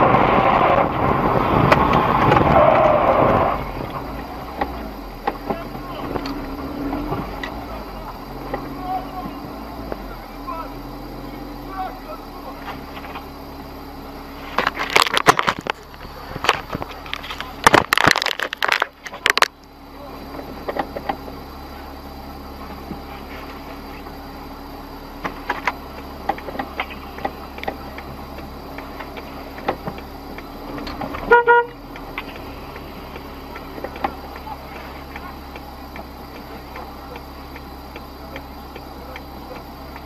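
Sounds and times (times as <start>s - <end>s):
dashcam being bumped: 0.0s - 10.1s, 14.4s - 19.6s, 20.3s - 21.4s, 25.2s - 40.0s
car horn toot: 31.0s - 32.0s.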